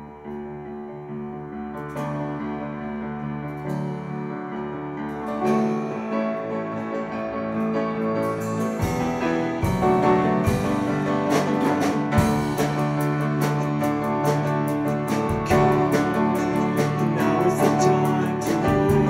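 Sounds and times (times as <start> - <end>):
electric bass: 0.0 - 19.0
piano chords: 0.0 - 19.0
acoustic guitar: 2.8 - 19.0
drum hits: 8.7 - 19.0.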